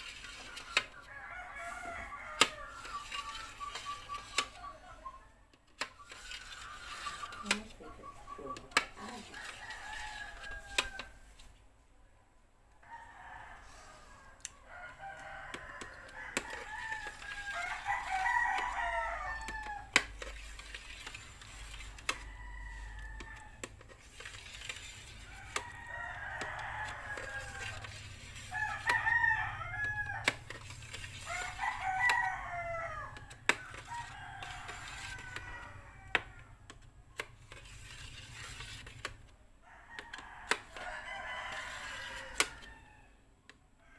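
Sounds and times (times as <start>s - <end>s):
rooster crowing: 1.0s - 4.6s, 8.3s - 11.3s, 12.8s - 20.0s, 22.1s - 23.6s, 25.2s - 36.7s, 39.6s - 43.2s.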